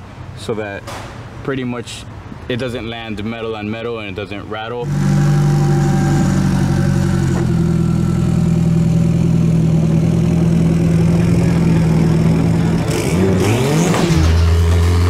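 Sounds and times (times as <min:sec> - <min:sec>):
car engine revving: 0:04.8 - 0:15.0
turbocharged engine through exhaust: 0:04.8 - 0:15.0.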